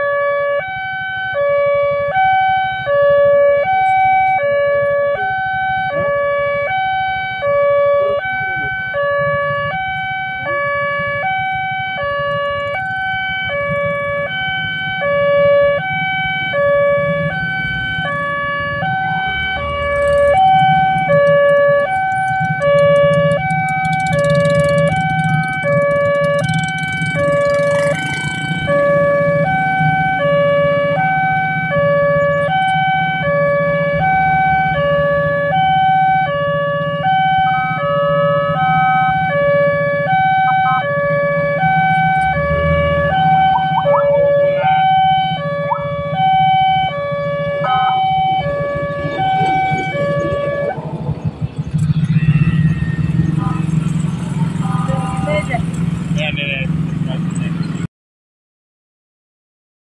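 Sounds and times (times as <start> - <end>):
level crossing two-tone alarm: 38.6 - 51.1
low rumble: 47.6 - 53.6.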